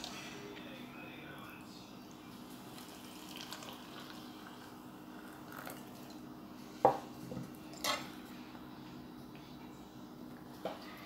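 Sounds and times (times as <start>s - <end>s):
water poured into a mug: 2.5s - 6.2s.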